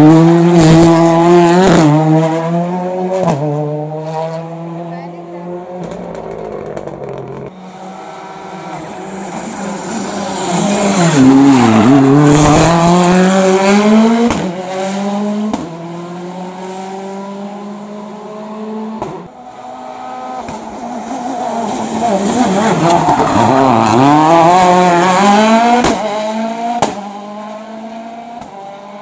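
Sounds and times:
rally car engine accelerating: 0.0 - 29.0
second rally car revving: 0.0 - 29.0.

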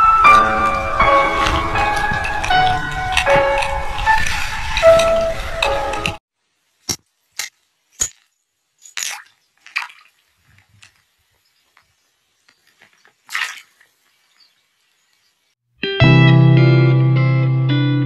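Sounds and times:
background music: 0.0 - 6.2, 15.8 - 18.0
water splashes and drips: 8.8 - 15.2.

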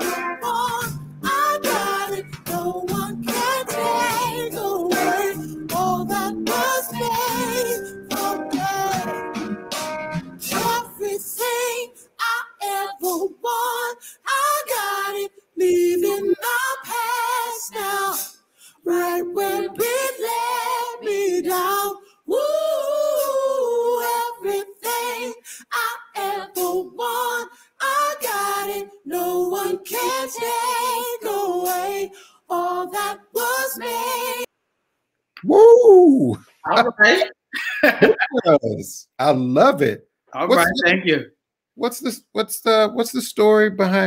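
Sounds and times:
man singing unaccompanied: 0.0 - 9.3, 10.4 - 34.5.

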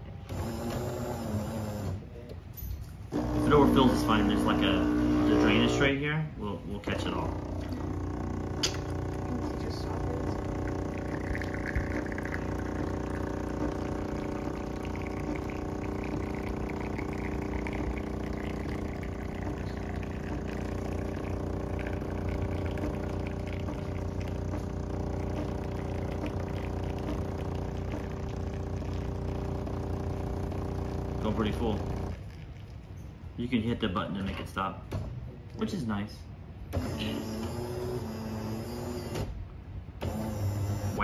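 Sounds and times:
espresso machine pump humming: 0.0 - 2.0, 3.1 - 5.9, 6.8 - 32.7, 36.8 - 39.2, 40.0 - 41.0
coffee trickling into a cup: 3.2 - 5.8, 6.9 - 33.1.

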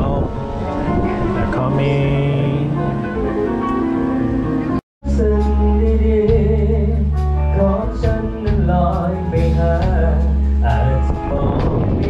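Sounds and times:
person singing: 0.0 - 3.2, 5.0 - 12.0
steady bass line: 0.0 - 12.0.

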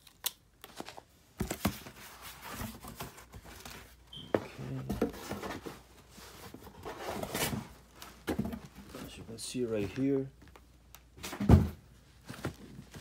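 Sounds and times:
cardboard rustling scrapes: 4.6 - 7.8.

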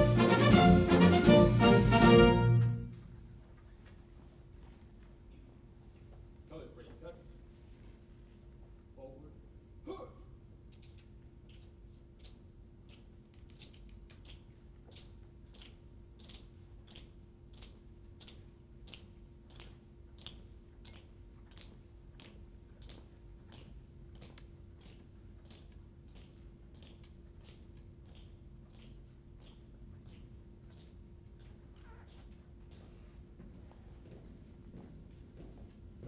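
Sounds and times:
steady low hum: 0.0 - 36.0
footsteps marching on hard floor: 22.2 - 36.0.

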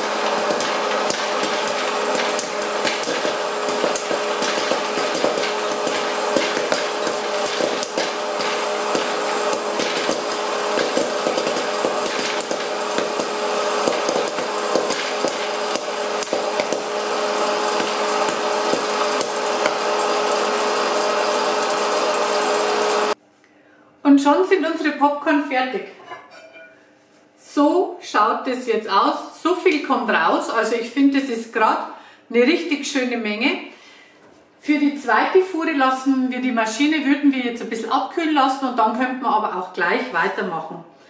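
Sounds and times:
popcorn kernels popping: 0.0 - 23.1
popcorn machine blower whirring: 0.0 - 23.2.

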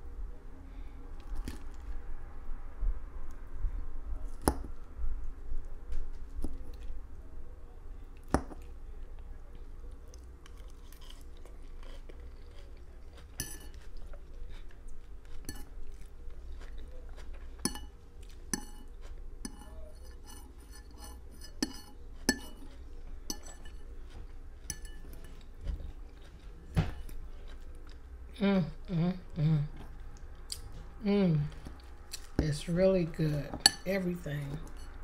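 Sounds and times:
chewing: 8.1 - 28.2
fork clinking against plate: 13.3 - 13.9, 17.6 - 23.9, 24.6 - 25.4.

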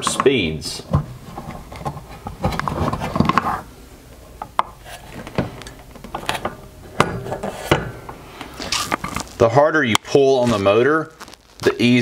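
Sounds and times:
rubber belt rubbing and rattling: 8.6 - 11.8.

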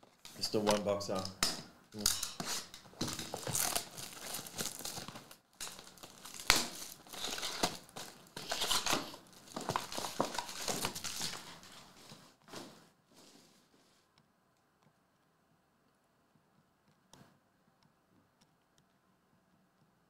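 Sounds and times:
plastic wrapping crinkling and tearing: 2.0 - 12.1
foil packs rustling: 2.0 - 13.7.

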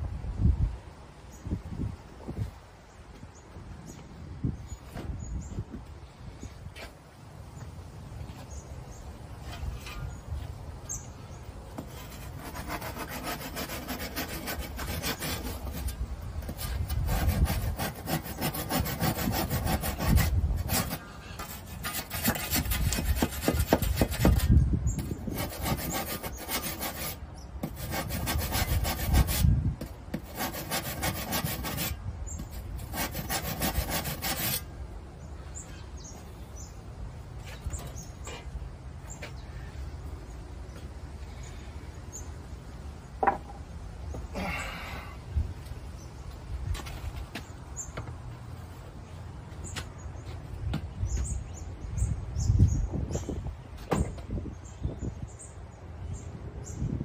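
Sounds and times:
hand saw rasping through plaster: 11.9 - 29.5, 30.1 - 34.7.

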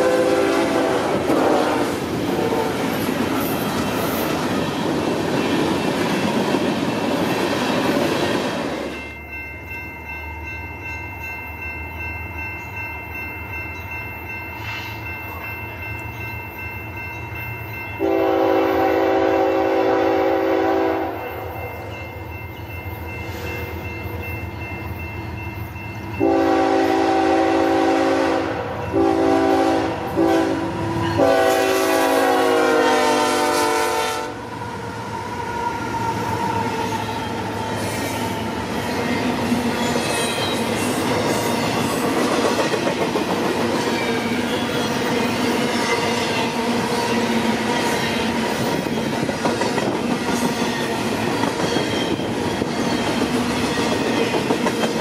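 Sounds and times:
locomotive horn blasts: 0.0 - 2.8, 18.0 - 21.6, 26.2 - 34.4.

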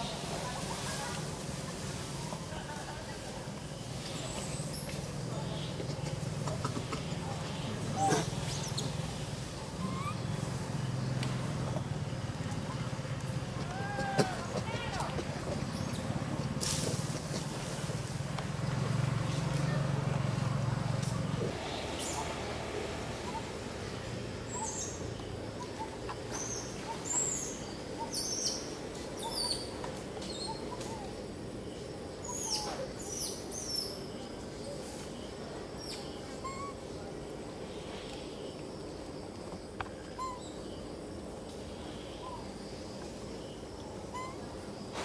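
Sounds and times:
birds chirping: 3.8 - 16.6, 18.5 - 39.1, 39.9 - 44.9.

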